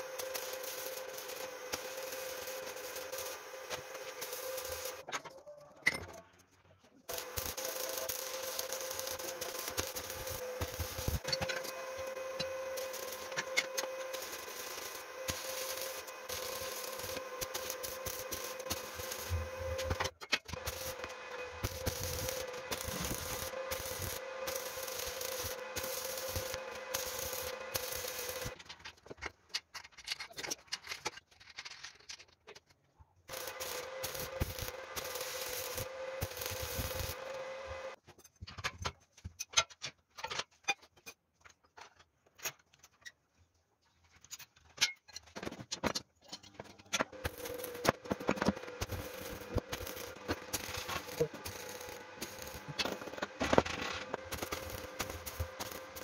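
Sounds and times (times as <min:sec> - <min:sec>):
welding arc crackling: 0:00.0 - 0:05.1, 0:07.1 - 0:28.6, 0:33.3 - 0:38.0, 0:47.0 - 0:56.0.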